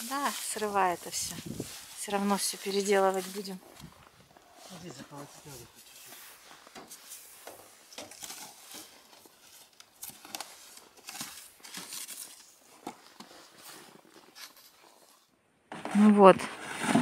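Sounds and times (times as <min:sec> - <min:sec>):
plastic sheeting rustling: 0:00.0 - 0:03.8.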